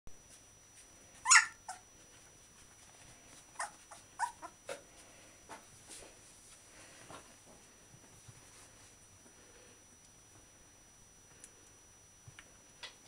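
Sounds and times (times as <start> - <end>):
puppies squeaking and whimpering: 1.2 - 1.8, 3.5 - 4.6.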